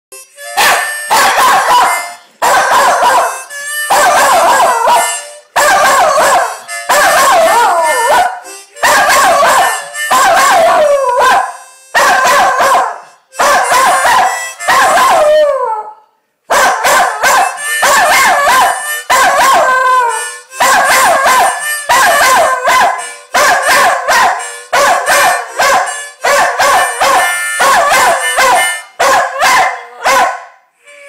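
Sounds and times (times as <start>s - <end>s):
dog howling: 1.3s - 11.3s.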